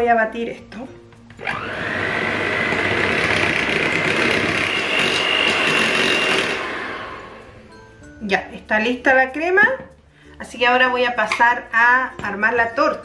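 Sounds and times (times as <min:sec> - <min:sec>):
electric hand mixer whining: 0:01.4 - 0:07.7.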